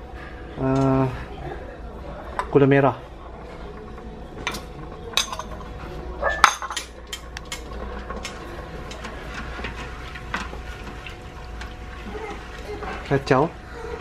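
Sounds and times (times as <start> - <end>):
metal spoon clinking on metal: 6.4 - 7.6.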